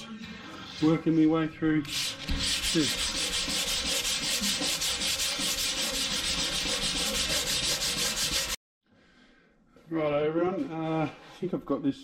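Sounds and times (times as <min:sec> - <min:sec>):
sandpaper sanding bare steel: 0:01.9 - 0:08.6.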